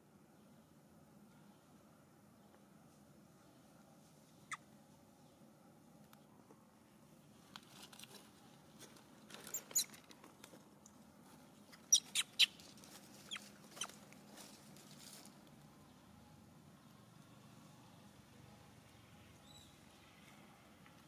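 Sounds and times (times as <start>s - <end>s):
high-pitched animal chirps: 11.8s - 12.6s.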